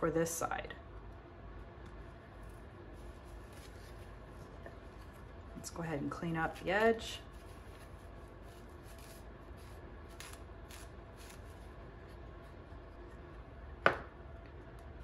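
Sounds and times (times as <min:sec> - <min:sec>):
paper towel rubbing wood: 0:03.0 - 0:04.5, 0:07.2 - 0:11.6
wooden piece tapping on table: 0:13.8 - 0:14.1.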